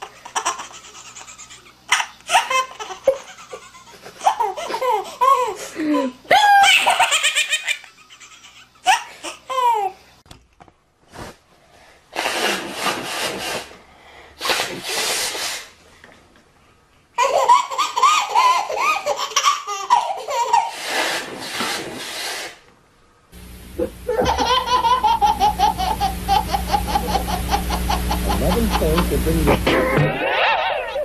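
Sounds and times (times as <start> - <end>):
baby laughing: 0.0 - 10.0, 17.2 - 20.9, 23.8 - 31.0
low steady hum: 22.7 - 31.0.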